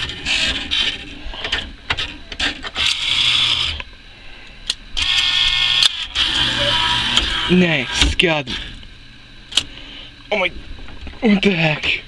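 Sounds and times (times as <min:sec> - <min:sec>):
claw machine whirring and clicking: 0:00.0 - 0:08.8.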